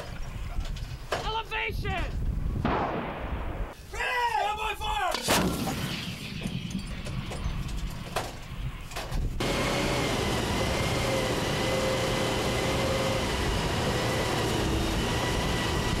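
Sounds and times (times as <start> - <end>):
tracked vehicle engine rumble: 9.4 - 16.0.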